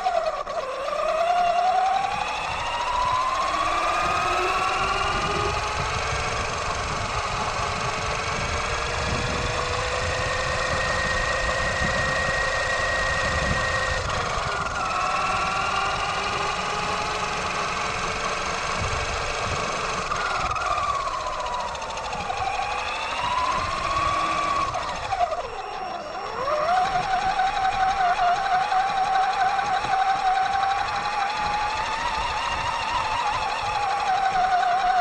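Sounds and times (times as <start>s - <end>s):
electric motor and gears whining: 0.0s - 35.0s.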